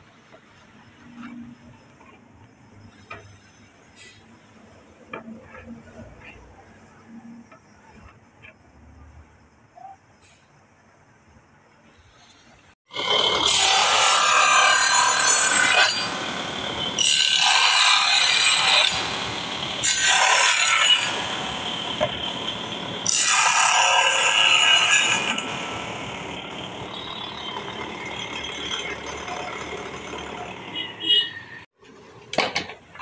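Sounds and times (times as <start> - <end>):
table saw cutting wood: 12.9 - 30.8.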